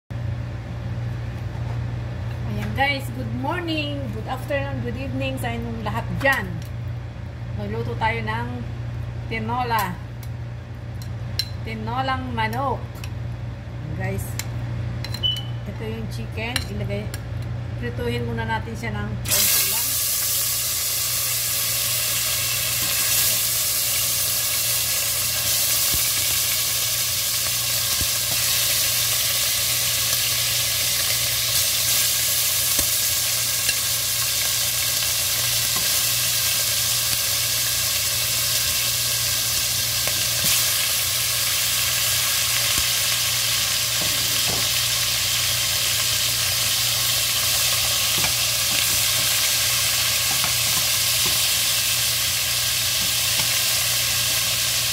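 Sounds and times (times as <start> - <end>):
chicken sizzling in hot oil: 19.3 - 54.9.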